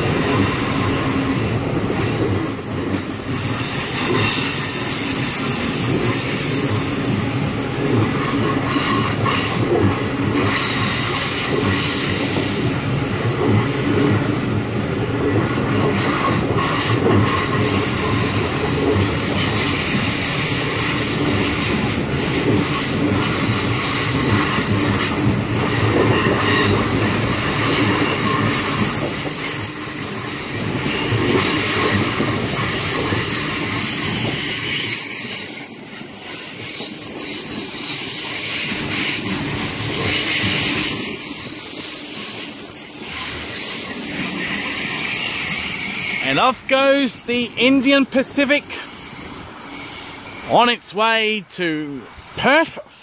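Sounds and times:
train wheels rumbling on rail: 0.0 - 47.8
high-pitched wheel squeal: 2.1 - 7.1, 16.8 - 21.7, 26.0 - 50.5.

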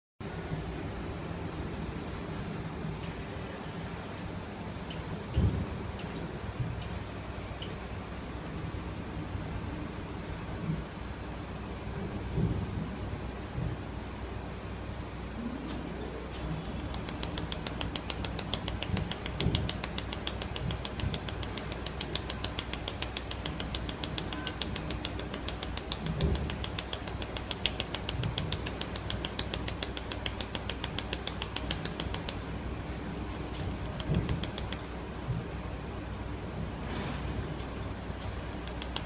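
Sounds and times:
laser welder clicks: 15.7 - 32.4, 33.5 - 34.8, 37.6 - 39.0.

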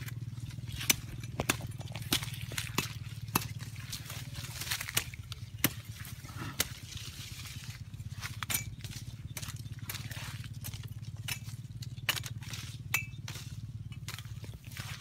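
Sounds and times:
steady low hum: 0.0 - 15.0
shrub stems snapping: 0.8 - 5.8.

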